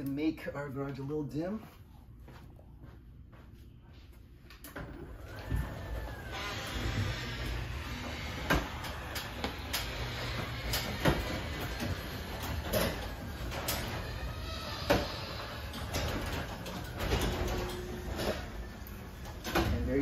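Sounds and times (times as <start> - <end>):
garage door opener rumbling: 4.6 - 20.0
garage door rattling on tracks: 4.9 - 20.0.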